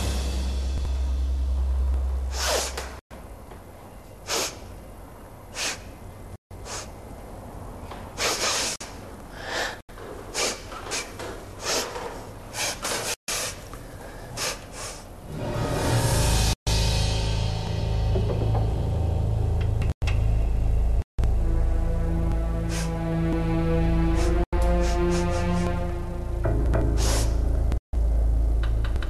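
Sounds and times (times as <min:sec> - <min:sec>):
woman sniffing: 0:02.3 - 0:02.9, 0:04.3 - 0:04.7, 0:05.6 - 0:05.9, 0:06.6 - 0:07.0, 0:08.2 - 0:08.8, 0:10.4 - 0:11.9, 0:12.6 - 0:15.1, 0:22.6 - 0:23.0, 0:24.1 - 0:25.7, 0:27.0 - 0:27.4.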